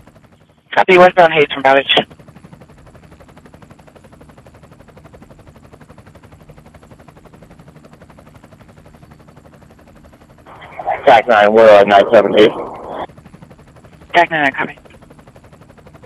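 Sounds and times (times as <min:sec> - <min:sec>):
helicopter rotor chop: 0:00.0 - 0:16.0.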